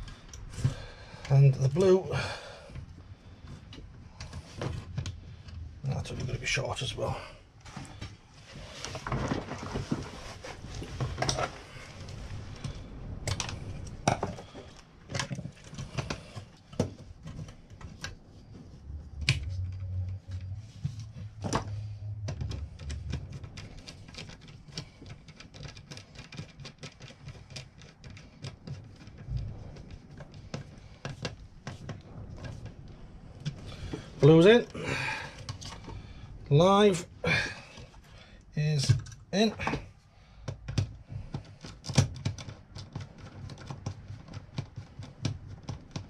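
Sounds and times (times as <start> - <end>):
low rumble: 0.0 - 24.7, 29.2 - 38.4
clicks taps and scrapes on plastic: 7.8 - 33.8, 38.8 - 46.0.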